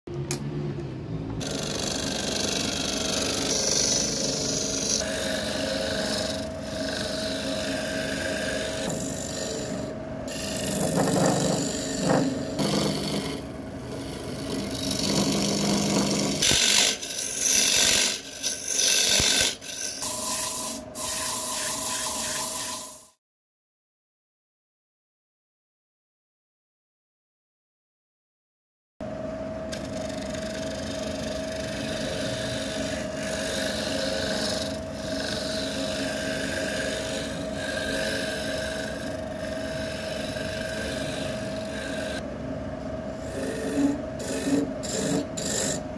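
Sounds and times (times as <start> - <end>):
lathe motor tone: 1.4 - 23.1, 29.7 - 42.2, 43.2 - 45.9
turning tool scraping spinning wood: 1.4 - 23.1, 29.8 - 42.2, 43.2 - 45.9.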